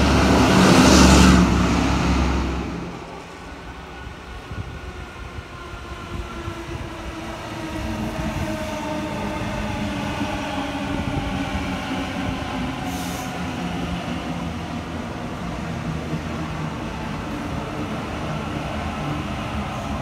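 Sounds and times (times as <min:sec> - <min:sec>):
train wheels rumbling on rails: 0:00.0 - 0:20.0.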